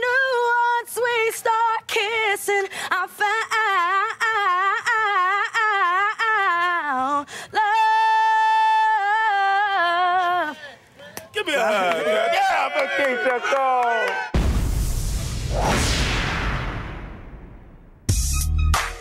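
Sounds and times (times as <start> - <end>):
woman singing a cappella: 0.0 - 10.8.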